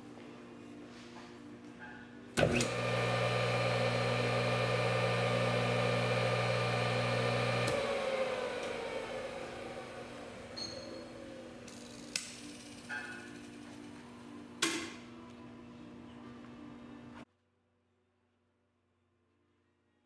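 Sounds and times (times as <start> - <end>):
electric motor humming and whining: 2.4 - 11.9.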